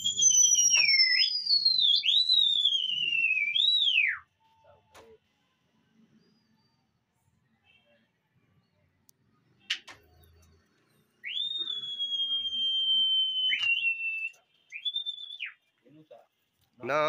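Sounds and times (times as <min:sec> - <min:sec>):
person whistling loud and high: 0:00.0 - 0:04.6, 0:11.2 - 0:15.6.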